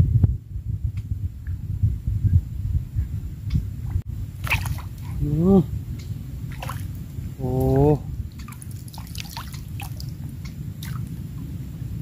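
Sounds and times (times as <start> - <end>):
steady low rumble: 0.0 - 12.0
fish splashing at water surface: 4.4 - 5.2, 6.5 - 7.0, 8.4 - 10.2
water dripping: 4.4 - 5.2, 6.0 - 11.2.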